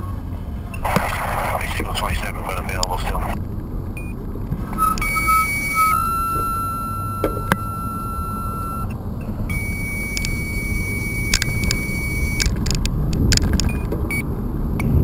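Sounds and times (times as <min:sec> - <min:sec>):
bicycle road noise on asphalt: 0:00.0 - 0:15.0
wind rumble on microphone: 0:00.0 - 0:15.0
thin high whine: 0:00.7 - 0:12.6
bike clicks and rattles: 0:12.4 - 0:14.1.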